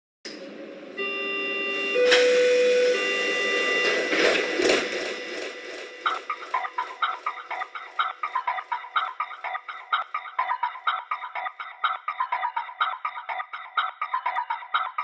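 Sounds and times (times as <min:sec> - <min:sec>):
electronic chords: 0:01.0 - 0:10.1
noisy swells: 0:01.7 - 0:10.0.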